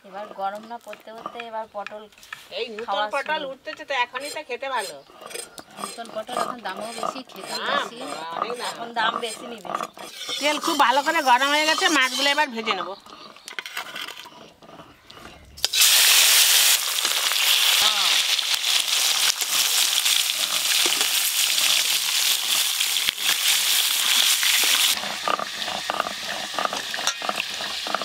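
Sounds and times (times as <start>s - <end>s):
fish sizzling in hot oil: 15.6s - 28.0s.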